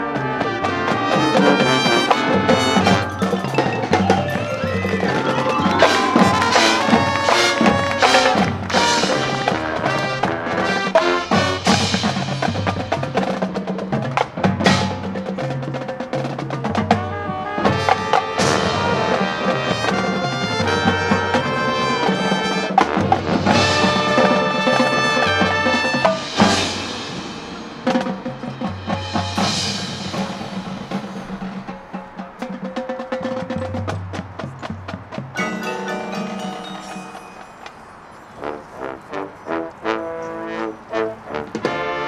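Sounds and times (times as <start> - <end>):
marching band playing: 0.0 - 42.0
snare rolls: 0.6 - 17.1
wood-block strikes: 1.2 - 10.0, 23.5 - 38.1.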